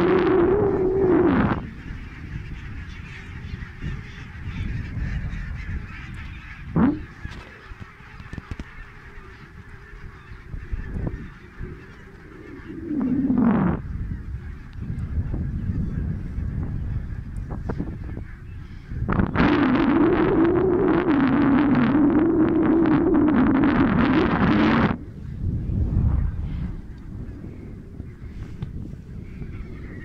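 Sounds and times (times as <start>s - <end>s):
flock of geese honking: 0.0s - 25.4s, 26.8s - 30.0s
low rumble: 19.0s - 30.0s.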